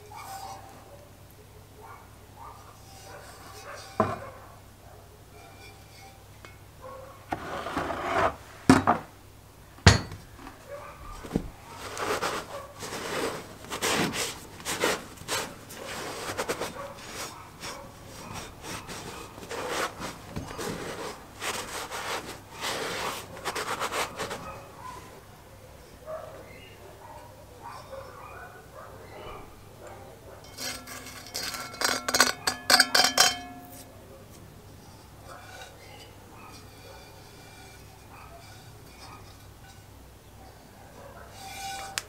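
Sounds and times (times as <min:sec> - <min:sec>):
towel wiping a pot: 0:00.0 - 0:00.8, 0:02.5 - 0:04.4, 0:05.3 - 0:06.4, 0:07.3 - 0:08.6, 0:11.1 - 0:25.2, 0:34.9 - 0:39.9, 0:41.3 - 0:42.0.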